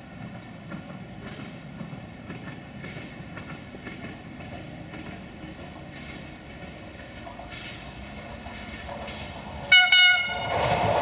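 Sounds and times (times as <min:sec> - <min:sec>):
clicks of train wheels: 0:00.0 - 0:11.0
train wheels rumbling on rails: 0:00.0 - 0:11.0.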